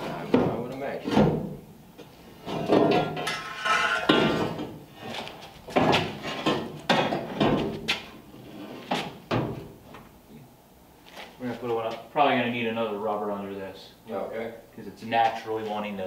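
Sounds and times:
metal clanking and knocking: 2.4 - 4.8, 5.7 - 7.8.

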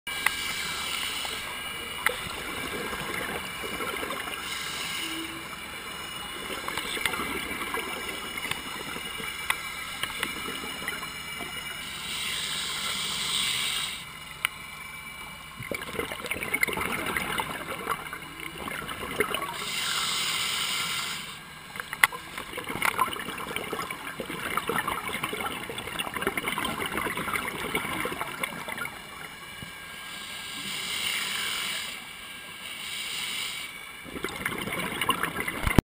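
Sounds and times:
underwater exhaled bubbles rushing: 0.1 - 12.8, 15.6 - 19.8, 21.8 - 29.6, 34.0 - 35.8
fine crackling clicks: 21.7 - 22.2.

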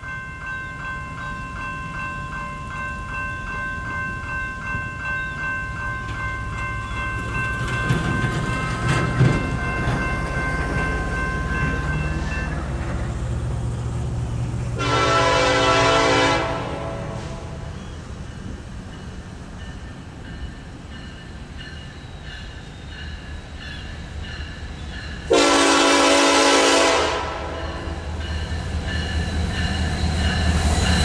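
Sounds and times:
locomotive air horn blast: 14.8 - 17.7, 25.3 - 27.8.

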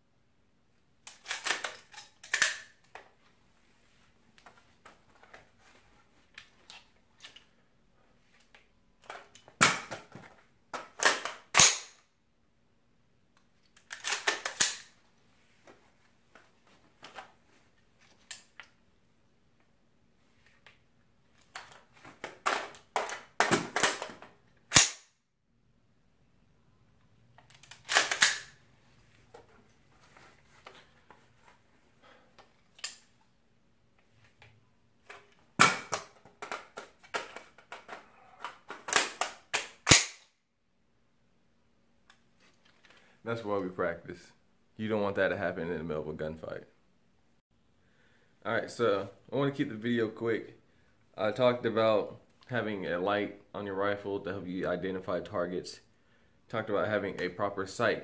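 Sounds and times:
rifle metallic clacks: 27.6 - 28.5.

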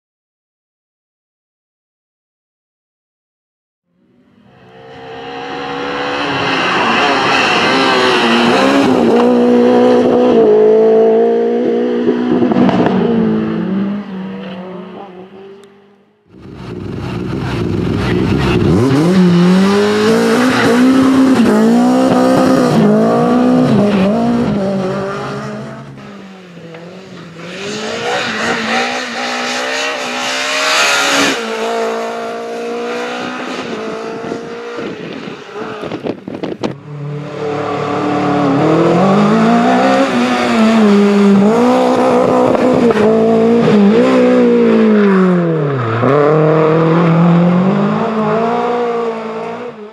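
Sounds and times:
rally car engines at full throttle: 4.0 - 49.9.

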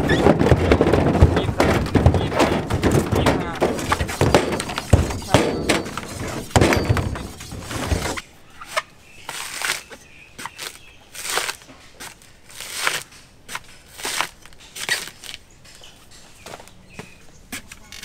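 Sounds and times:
blade scraping coconut husk: 7.2 - 15.4.

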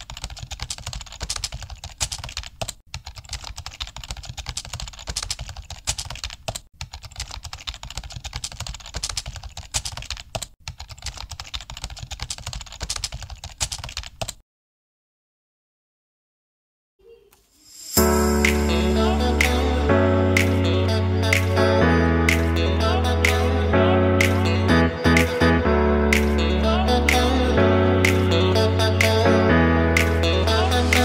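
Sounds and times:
fast keyboard typing: 0.0 - 14.4.

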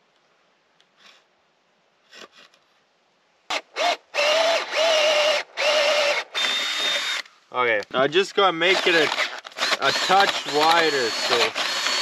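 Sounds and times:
cordless drill boring into wood: 3.5 - 7.3, 8.6 - 12.0.

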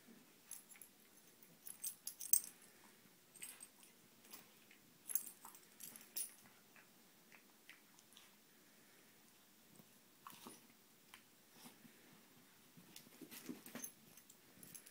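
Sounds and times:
dogs play-wrestling clicks and jingles: 0.5 - 2.6, 3.4 - 4.5, 5.1 - 6.6, 13.0 - 14.9.

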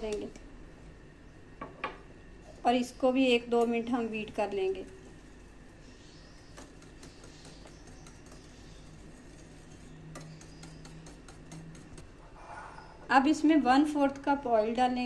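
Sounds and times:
whisk clicking on glass bowl: 6.3 - 12.0.

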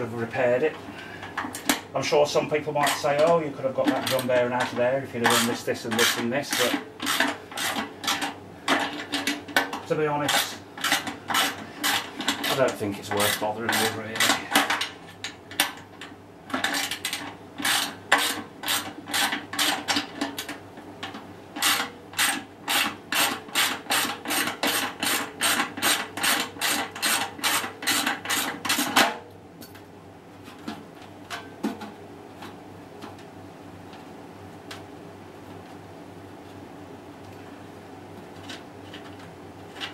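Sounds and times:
hand tool rasping on metal bolts: 5.2 - 9.3, 10.2 - 14.6, 21.6 - 28.9.

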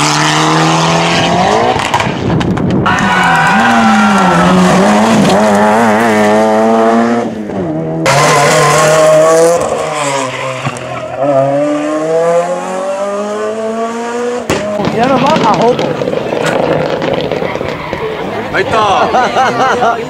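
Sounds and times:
rally car engine at high revs: 0.0 - 17.6
car accelerating past: 3.0 - 15.0.

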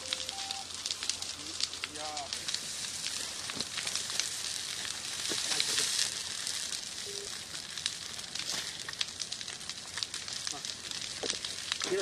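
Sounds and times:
fire crackling: 0.0 - 12.0
fire hissing: 0.0 - 12.0.

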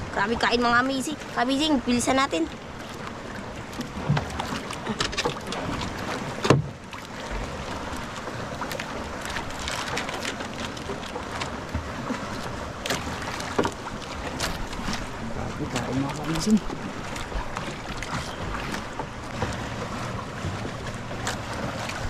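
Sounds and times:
water lapping against boat hull: 0.0 - 22.0
sharp knocks on boat: 3.7 - 7.5, 8.6 - 15.1, 15.7 - 22.0.

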